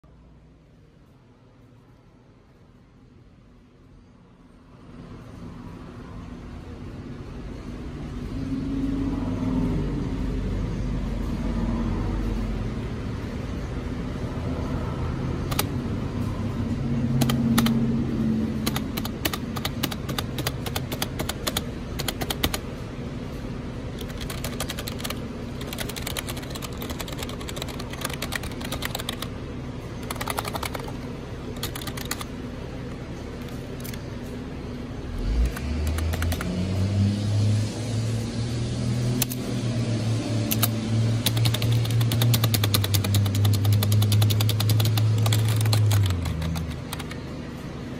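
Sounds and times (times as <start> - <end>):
low steady hum: 0.0 - 47.9
keyboard keys clicking: 15.5 - 15.7, 17.2 - 17.8, 18.6 - 22.6, 24.0 - 29.3, 30.0 - 31.0, 31.6 - 32.3, 35.4 - 36.5, 40.5 - 47.2.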